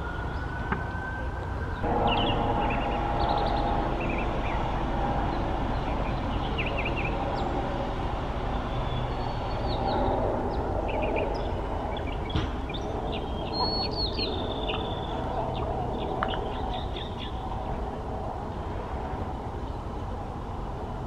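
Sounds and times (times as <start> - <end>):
low background rumble: 1.5 - 21.0
mockingbird singing: 1.7 - 7.8, 8.5 - 17.8.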